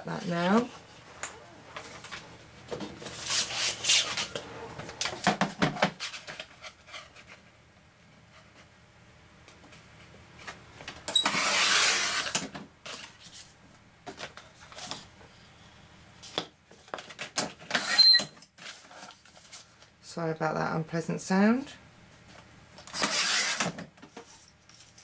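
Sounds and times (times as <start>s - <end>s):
person speaking: 0.0s - 1.8s.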